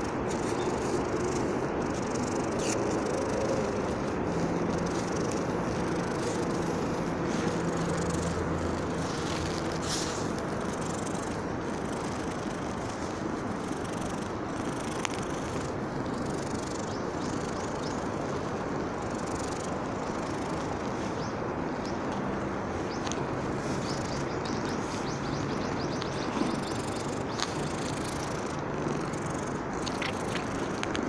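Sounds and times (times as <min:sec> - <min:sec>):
outdoor background noise: 0:00.0 - 0:31.0
small birds chirping: 0:00.0 - 0:31.0.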